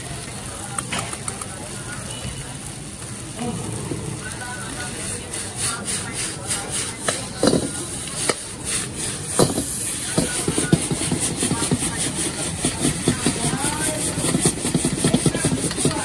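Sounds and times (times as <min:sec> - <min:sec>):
food sizzling: 0:00.0 - 0:16.0
metal ladle scraping a wok: 0:04.9 - 0:16.0.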